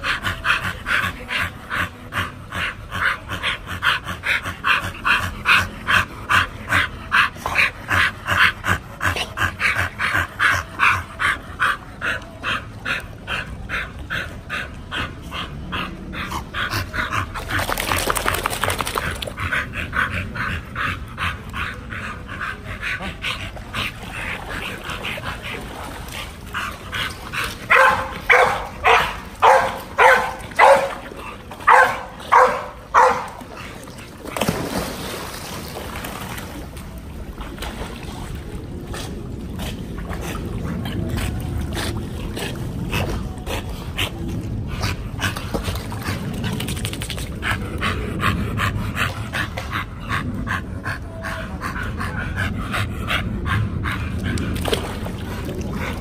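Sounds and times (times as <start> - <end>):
water splashing: 17.2 - 19.6, 23.1 - 43.9, 54.2 - 56.0
dog barking loudly: 27.7 - 31.0, 31.7 - 33.4.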